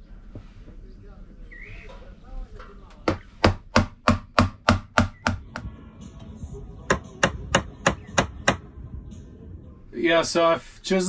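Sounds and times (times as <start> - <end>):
hammer striking wood chisel: 3.0 - 5.7, 6.8 - 8.7.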